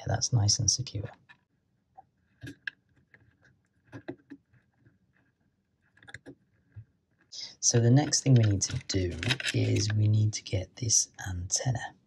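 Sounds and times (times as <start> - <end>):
small clicks of handling wiring: 8.0 - 10.0.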